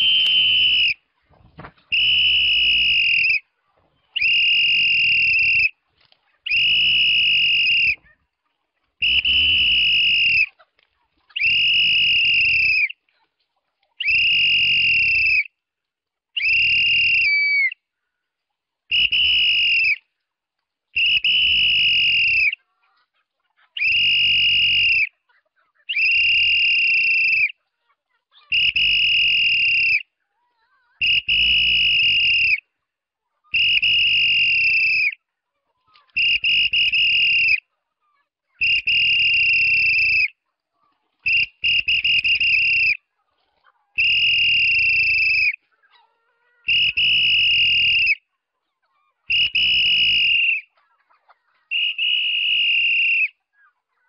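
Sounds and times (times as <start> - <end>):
long high-pitched whistle blasts: 0.0 - 1.0, 1.9 - 3.4, 9.0 - 10.5, 11.4 - 12.9, 18.9 - 20.0, 46.7 - 48.2, 49.3 - 50.6, 51.7 - 53.3.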